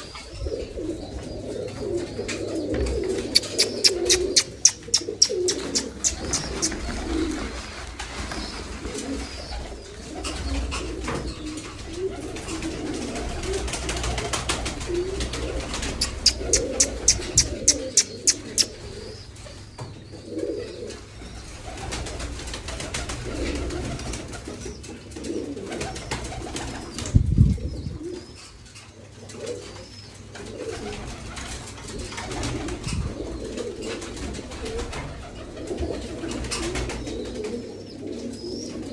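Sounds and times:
pigeons cooing: 0.0s - 38.9s
wings flapping: 3.0s - 18.9s, 21.5s - 24.6s, 25.7s - 27.1s, 30.4s - 37.5s.

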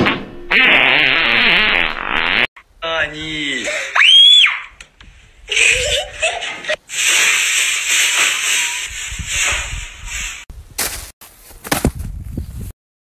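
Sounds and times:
person laughing and wheezing: 5.4s - 6.8s.

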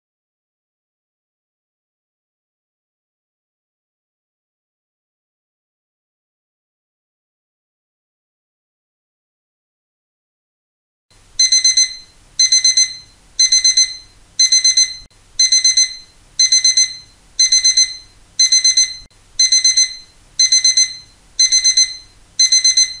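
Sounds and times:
digital alarm clock beeping: 11.4s - 23.0s.

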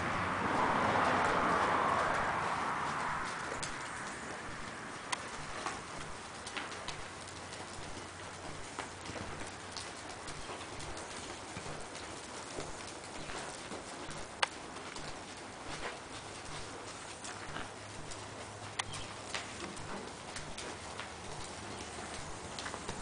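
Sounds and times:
horse hooves trotting on sand: 0.0s - 23.0s
sharp clicks: 3.5s - 5.8s.

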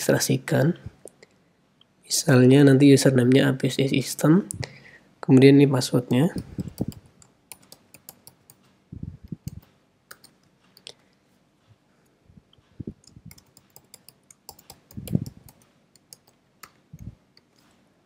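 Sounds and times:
computer keyboard typing: 6.1s - 8.6s, 9.4s - 10.9s, 13.0s - 16.8s.

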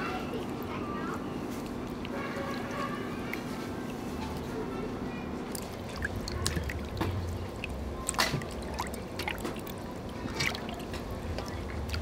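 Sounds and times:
water splashing in a metal basin: 5.4s - 12.0s
short sharp splashes: 5.5s - 12.0s.

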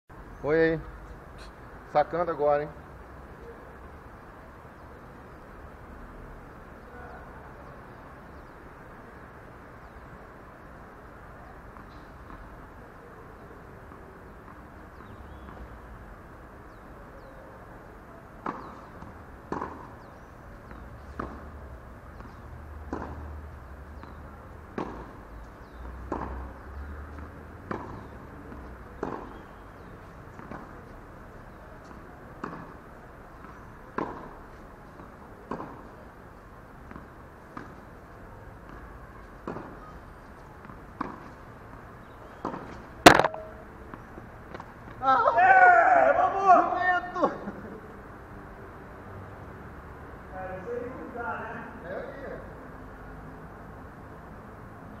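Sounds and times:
tennis ball hit by rackets: 18.4s - 30.8s, 31.8s - 32.8s, 33.4s - 36.0s, 36.8s - 37.9s, 38.6s - 44.7s.

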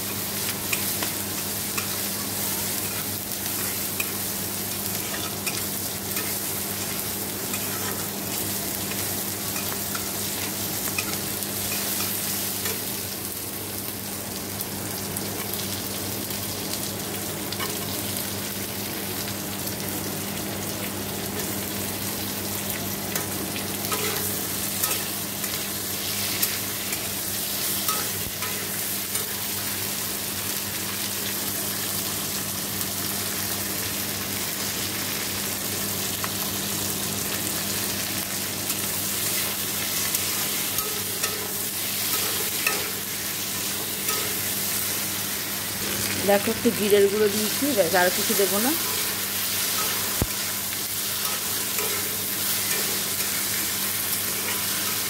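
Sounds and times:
vegetables sizzling in oil: 0.0s - 55.0s
metal spatula scraping a pan: 51.2s - 53.1s.

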